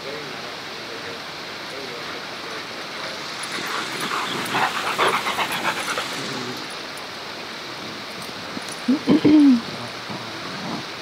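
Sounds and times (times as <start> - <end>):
waterfall rushing: 0.0 - 11.0
dog panting: 3.0 - 6.8.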